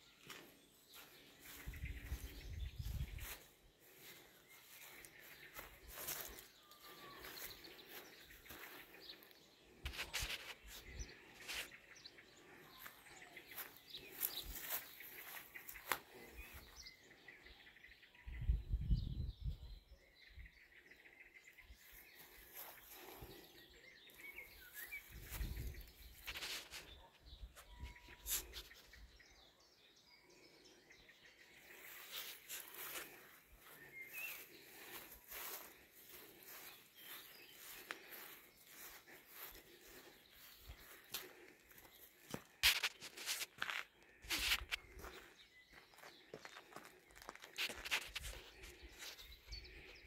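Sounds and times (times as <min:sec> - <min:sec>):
bird chirps: 0:00.0 - 0:43.6.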